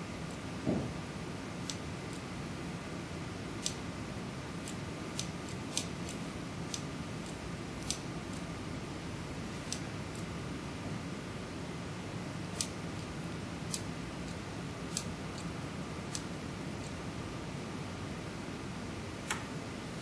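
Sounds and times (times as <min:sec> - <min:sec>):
soft thump: 0:00.6 - 0:00.9.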